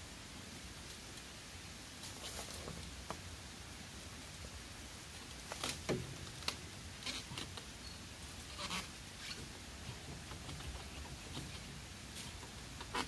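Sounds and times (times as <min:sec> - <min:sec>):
dry bamboo leaves rustling: 0:00.0 - 0:13.0.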